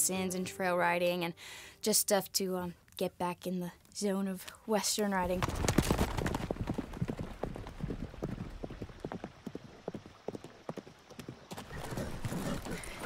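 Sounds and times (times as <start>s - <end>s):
horse hoofbeats galloping on dirt: 5.1s - 13.0s.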